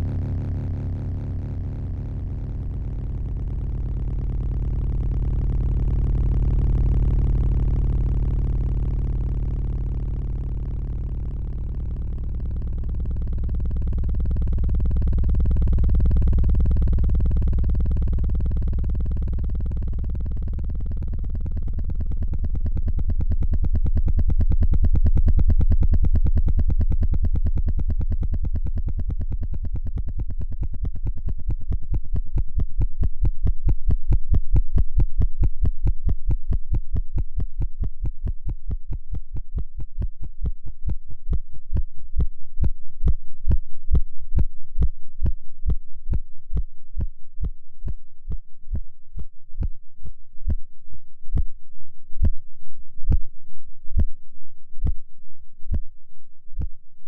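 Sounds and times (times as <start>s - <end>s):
low electronic pulses: 0.0s - 38.6s
low buzzing synth drone: 0.0s - 56.9s.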